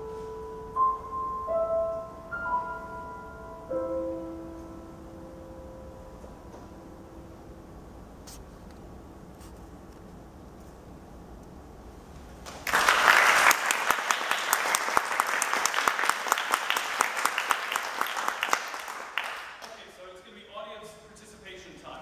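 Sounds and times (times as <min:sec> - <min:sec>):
audience applause: 0:12.5 - 0:19.8.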